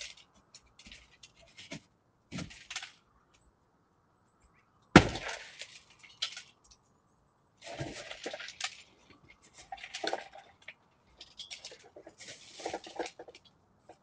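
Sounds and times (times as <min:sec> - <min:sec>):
scraping at sliding glass door: 0:11.6 - 0:13.2.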